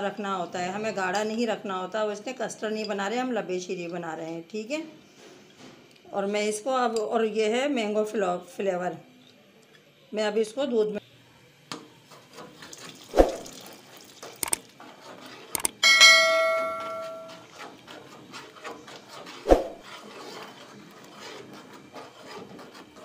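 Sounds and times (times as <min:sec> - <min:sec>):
metallic clang of spoon on pot: 0:15.8 - 0:17.4
spoon knocking on pot: 0:15.8 - 0:17.4.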